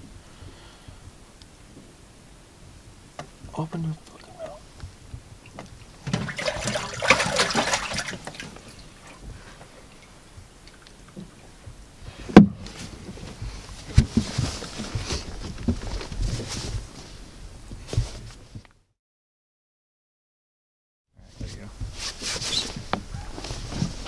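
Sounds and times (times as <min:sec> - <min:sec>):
water splashing and sloshing: 0:03.5 - 0:11.8.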